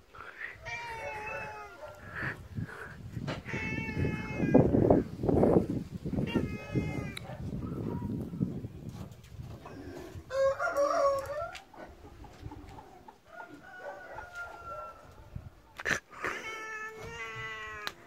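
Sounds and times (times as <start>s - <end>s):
drawn-out animal calls: 0.0s - 5.0s.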